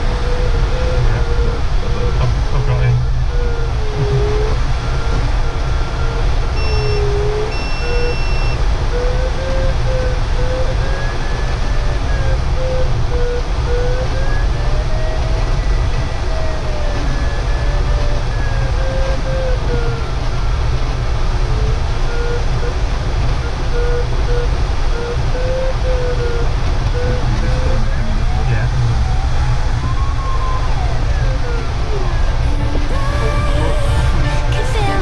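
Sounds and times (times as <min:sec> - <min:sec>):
brief higher tone: 0:00.0 - 0:11.4
rush of airflow noise: 0:00.0 - 0:35.0
variometer beeping rapidly: 0:04.0 - 0:08.7.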